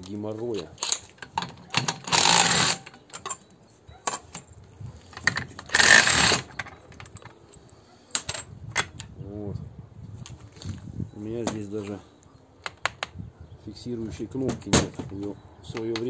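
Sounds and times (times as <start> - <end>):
metal discs clinking: 0.0 - 9.0.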